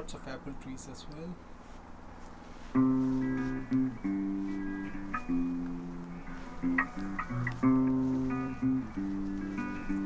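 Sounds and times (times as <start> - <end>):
plucked acoustic guitar tune: 2.8 - 10.0.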